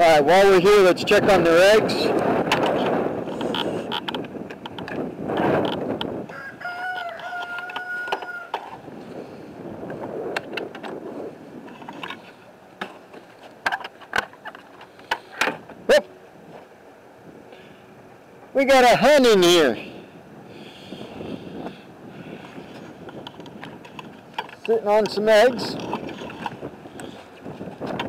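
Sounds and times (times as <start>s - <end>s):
wind on microphone: 0.0s - 12.6s, 19.5s - 28.0s
rooster crowing: 6.3s - 8.7s.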